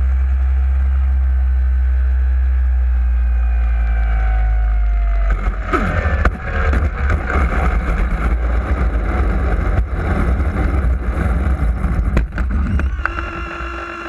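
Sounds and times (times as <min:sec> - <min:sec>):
plane wheels rumbling on asphalt: 0:00.0 - 0:14.0
electric motor whine: 0:00.4 - 0:14.0
wind on microphone: 0:05.2 - 0:14.0.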